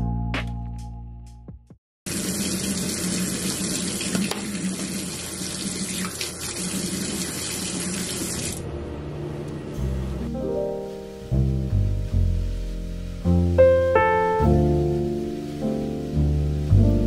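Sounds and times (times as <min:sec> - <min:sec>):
faucet running into sink: 0:02.1 - 0:08.6.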